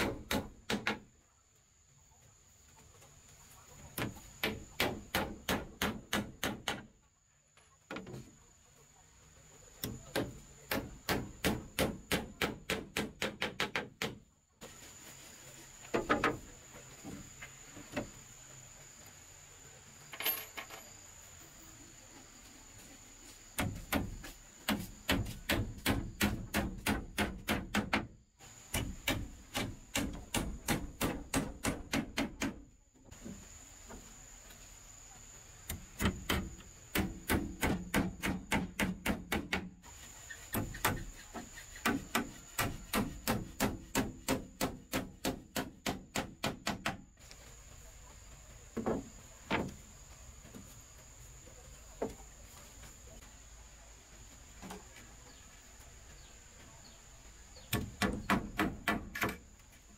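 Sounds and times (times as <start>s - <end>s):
hammer striking nails into wood: 0.0s - 1.0s, 4.0s - 6.9s, 9.8s - 14.2s, 23.6s - 28.1s, 28.7s - 32.6s, 35.7s - 39.7s, 41.8s - 47.0s, 57.7s - 59.4s.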